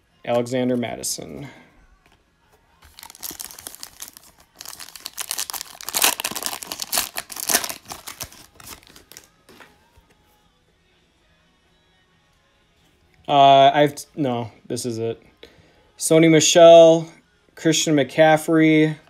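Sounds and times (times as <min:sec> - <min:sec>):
foil wrapper tearing and crinkling: 0:02.8 - 0:09.3.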